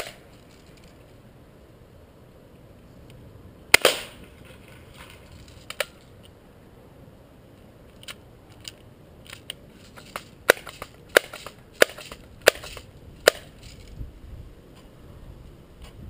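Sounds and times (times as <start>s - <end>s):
bb gun clicks and cracks: 7.9s - 13.8s.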